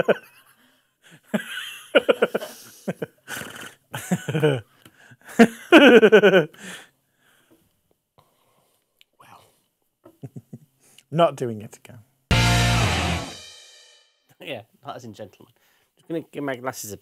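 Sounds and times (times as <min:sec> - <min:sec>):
man laughing wheezily: 0:00.0 - 0:06.8
man gasping for breath: 0:06.5 - 0:07.6.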